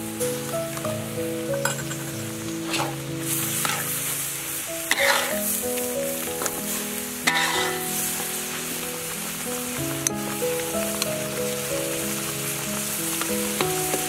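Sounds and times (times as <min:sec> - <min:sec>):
soft background music: 0:00.0 - 0:14.0
paste sizzling in a pan: 0:00.2 - 0:14.0
metal spatula scraping a pan: 0:02.7 - 0:04.0, 0:04.9 - 0:05.6, 0:07.2 - 0:07.8.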